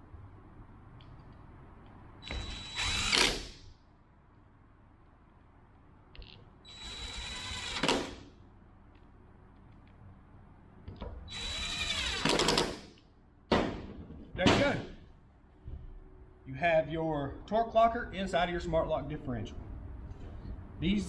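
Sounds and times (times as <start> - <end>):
cordless drill driving bolts: 2.2 - 3.6, 6.7 - 8.2, 11.3 - 12.8.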